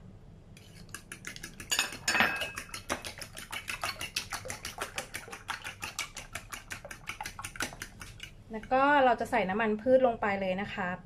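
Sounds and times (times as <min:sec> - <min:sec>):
fork beating eggs in bowl: 0:00.6 - 0:09.3.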